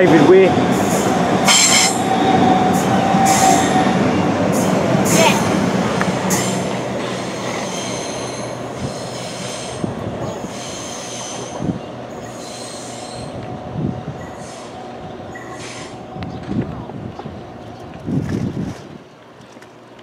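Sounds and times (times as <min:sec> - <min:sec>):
electric train pulling away: 0:00.0 - 0:18.0
train wheels squealing: 0:00.8 - 0:03.9, 0:06.3 - 0:13.4, 0:14.2 - 0:16.0.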